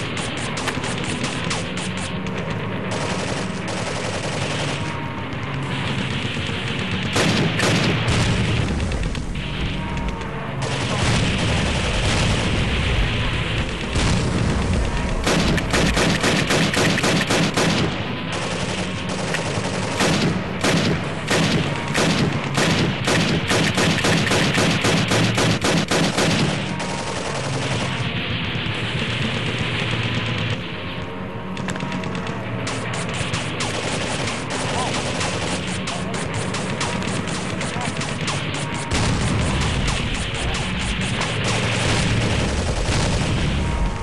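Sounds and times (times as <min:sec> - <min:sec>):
paintball markers firing: 0:13.5 - 0:28.0, 0:31.5 - 0:43.3.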